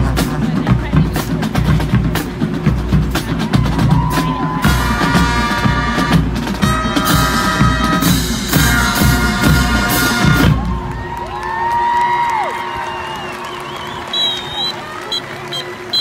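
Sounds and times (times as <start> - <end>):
marching band playing: 0.0 - 11.4, 13.5 - 16.0
crowd cheering: 3.3 - 5.5, 9.9 - 16.0.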